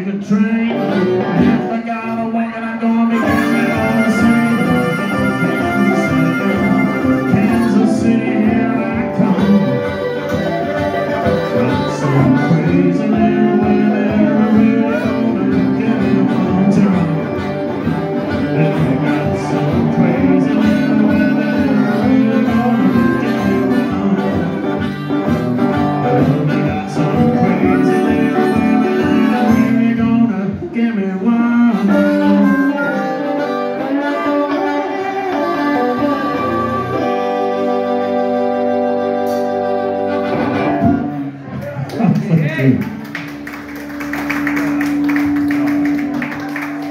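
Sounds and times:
electric guitar: 0.0s - 46.9s
strummed acoustic guitar: 0.1s - 33.2s
harmonica: 3.1s - 30.3s, 31.5s - 41.4s.

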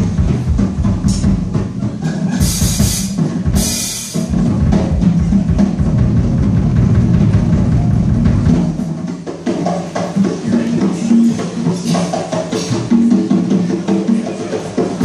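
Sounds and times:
bass drum: 0.0s - 9.1s
drum rolls: 0.0s - 15.0s.

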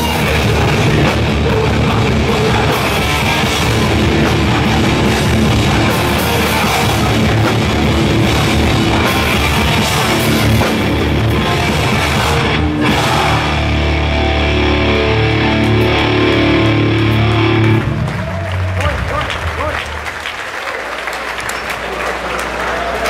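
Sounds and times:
held guitar chords ringing: 0.0s - 18.0s
hardcore punk band playing: 0.0s - 19.6s.

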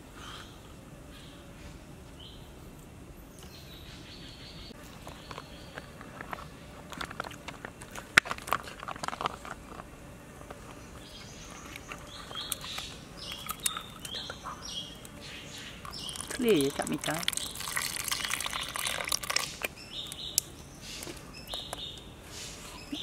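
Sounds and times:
crab shell cracking and crunching: 5.0s - 9.9s, 11.6s - 14.2s, 15.8s - 20.6s.

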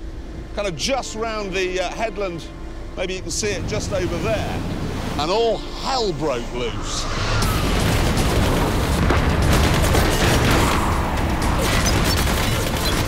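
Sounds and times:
dramatic music: 0.0s - 13.0s
booming explosions: 7.2s - 13.0s
heavy gunfire: 7.6s - 13.0s.

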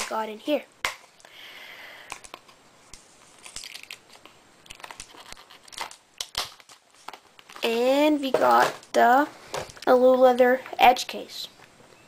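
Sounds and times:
packaging crinkling and rustling: 2.1s - 9.0s
handling noises: 2.1s - 10.9s.

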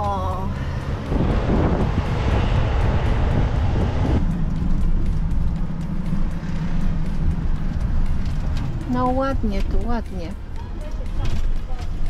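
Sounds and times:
engine and road hum: 0.0s - 12.0s
rushing noise: 0.5s - 8.9s.

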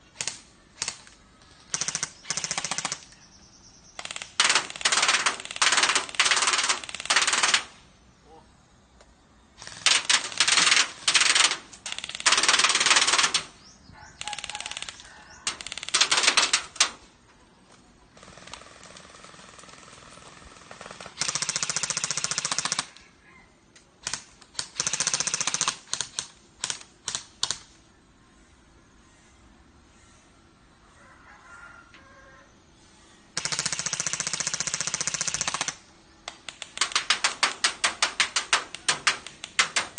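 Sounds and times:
airsoft guns firing bursts: 0.1s - 3.2s, 4.0s - 7.8s, 9.6s - 17.0s, 18.1s - 22.9s, 24.0s - 27.7s, 33.3s - 39.9s.

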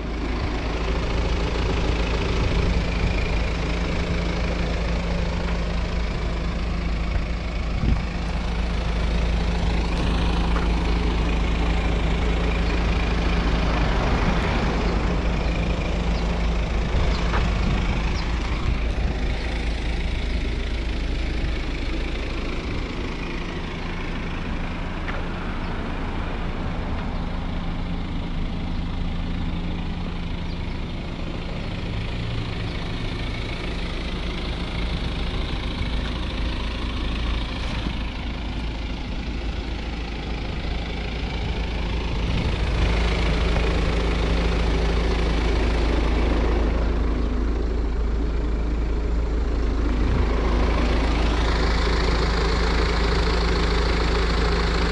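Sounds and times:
car engine idling: 0.0s - 54.9s.

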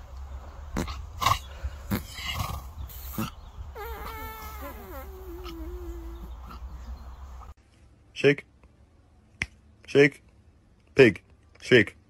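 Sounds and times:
horse calling: 3.8s - 6.7s.

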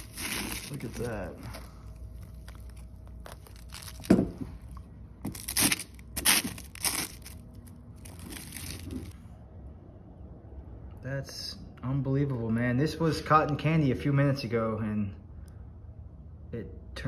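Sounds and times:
stick crunching hardened sugar: 0.0s - 9.2s.

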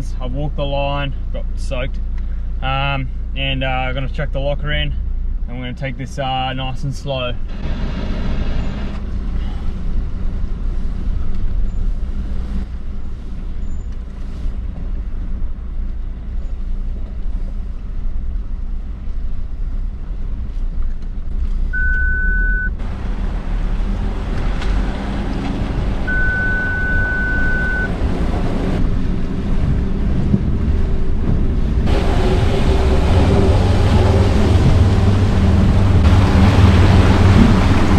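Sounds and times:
vehicle engine running low: 0.0s - 37.9s
electronic warning beep: 21.8s - 22.8s, 26.1s - 27.9s
water rushing and splashing: 22.8s - 30.0s, 30.6s - 37.9s.

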